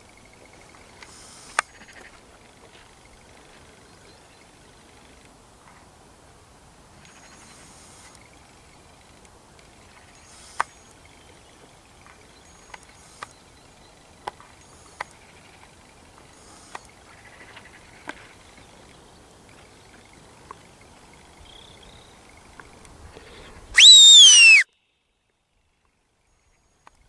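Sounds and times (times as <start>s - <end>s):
faint ticks: 0.4s - 3.8s, 7.0s - 11.2s, 12.0s - 13.6s, 14.2s - 23.3s, 26.8s - 27.0s
sliding whistle: 23.8s - 24.6s.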